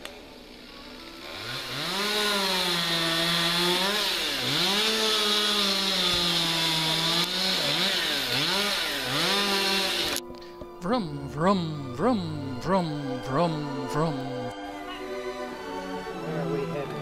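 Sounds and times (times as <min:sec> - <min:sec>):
chainsaw revving: 0:00.5 - 0:10.2.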